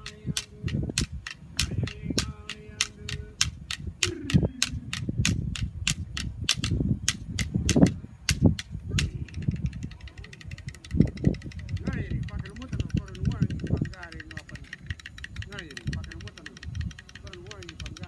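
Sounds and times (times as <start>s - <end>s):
man singing low: 0.0s - 1.0s, 1.6s - 4.9s
clapstick beats: 0.0s - 18.0s.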